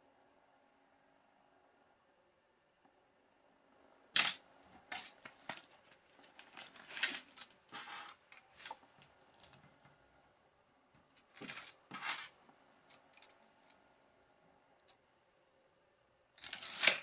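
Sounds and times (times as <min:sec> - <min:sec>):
wire cables clicking and scraping: 0:04.2 - 0:09.9, 0:11.0 - 0:13.8, 0:16.4 - 0:17.0
tape measure pulled out: 0:16.4 - 0:17.0.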